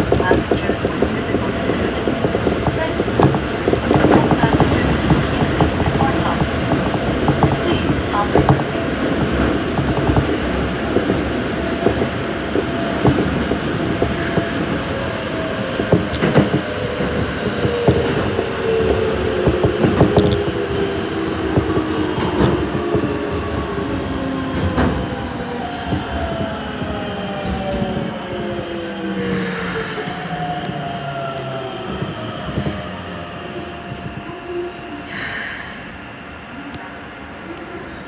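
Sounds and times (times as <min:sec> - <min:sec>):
train rumble in tunnel: 0:00.0 - 0:38.0.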